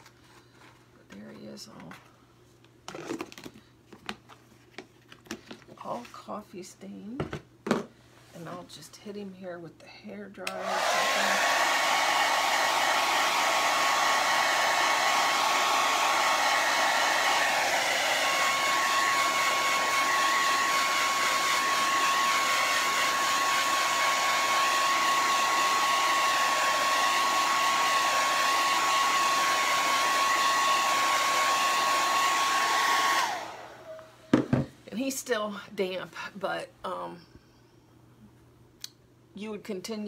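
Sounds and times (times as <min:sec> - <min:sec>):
hair dryer running: 0:10.4 - 0:34.7.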